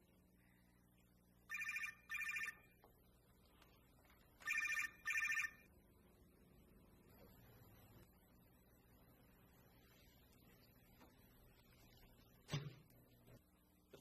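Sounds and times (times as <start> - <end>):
mobile phone ringing: 1.5 - 2.8, 4.4 - 5.7.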